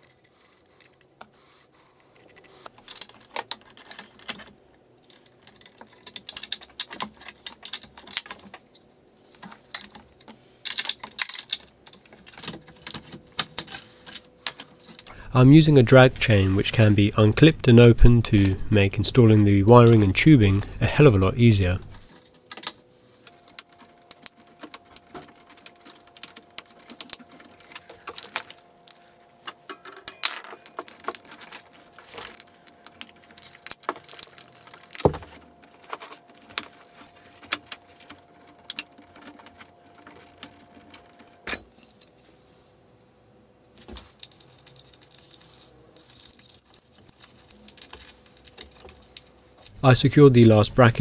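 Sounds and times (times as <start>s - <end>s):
plastic parts clicking and rattling: 2.1s - 8.7s, 9.4s - 15.1s, 46.1s - 49.2s
faint steady hum: 7.2s - 51.0s.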